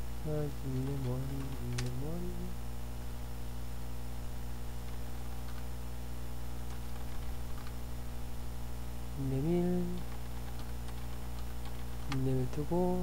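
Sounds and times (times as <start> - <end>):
electrical mains hum: 0.0 - 13.0
faint clicks: 0.7 - 2.2, 9.9 - 12.3.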